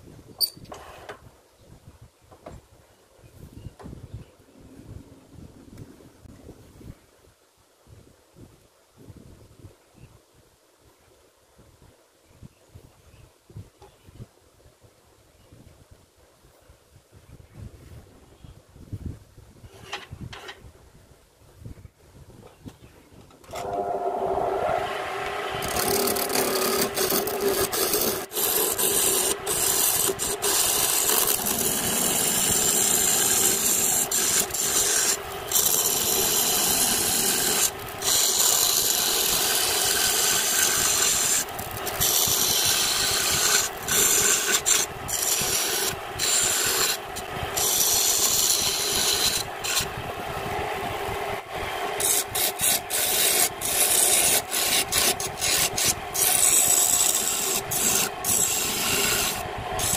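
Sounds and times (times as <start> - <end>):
lathe running hum: 23.5 - 59.9
tool scraping spinning wood: 23.5 - 59.9.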